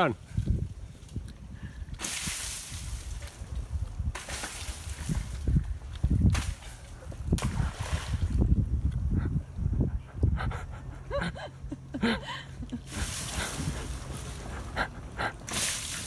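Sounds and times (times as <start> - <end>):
wind rumbling on microphone: 0.2 - 16.0
splashing shallow water: 6.2 - 8.5, 12.8 - 14.8, 15.4 - 16.0.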